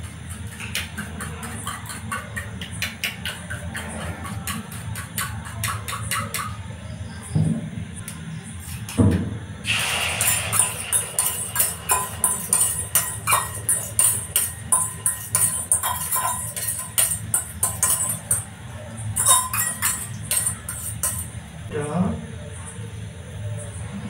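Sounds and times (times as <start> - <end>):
egg sizzling in hot oil: 9.6 - 18.4.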